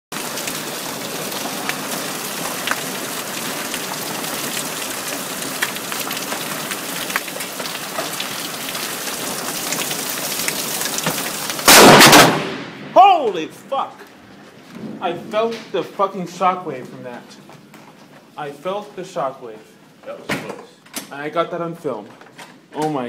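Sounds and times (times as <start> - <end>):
hail and rain pelting: 0.1 - 18.7
sharp ticks of hailstones: 0.2 - 12.0
loud crack of thunder: 11.6 - 13.0.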